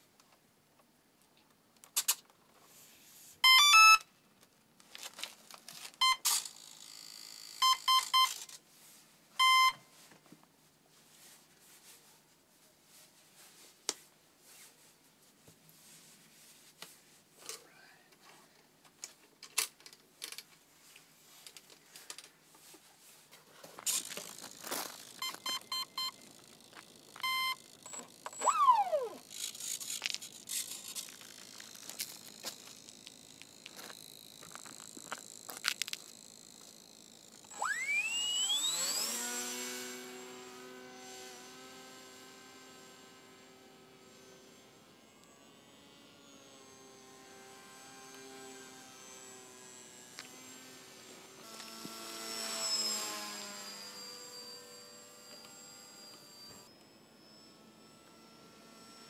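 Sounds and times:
short electronic beeps: 3.4s - 4.0s, 9.4s - 9.8s, 25.2s - 26.2s, 27.2s - 29.0s
model plane motor whine: 6.0s - 8.5s, 23.8s - 59.0s.

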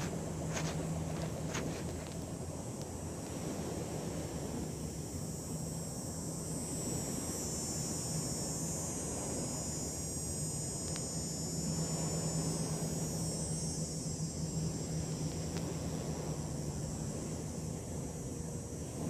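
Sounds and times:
high hiss: 0.0s - 19.0s
low rumbling hiss: 0.0s - 19.0s
steady low hum: 0.0s - 19.0s
faint tick: 10.8s - 11.1s.

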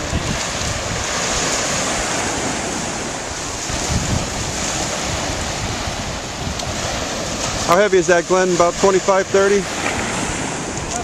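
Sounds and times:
surf washing onto beach: 0.0s - 11.0s
wind buffeting microphone: 0.0s - 11.0s.

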